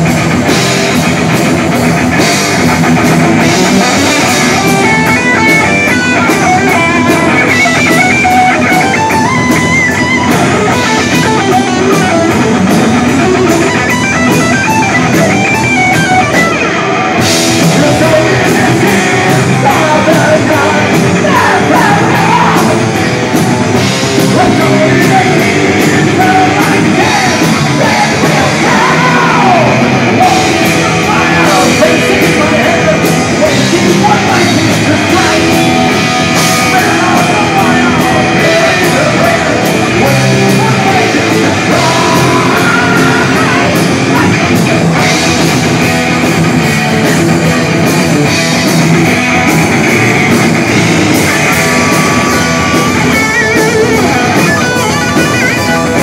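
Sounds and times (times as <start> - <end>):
heavy metal band playing: 0.0 - 56.0
person singing: 17.4 - 23.4, 24.2 - 44.6, 49.9 - 56.0.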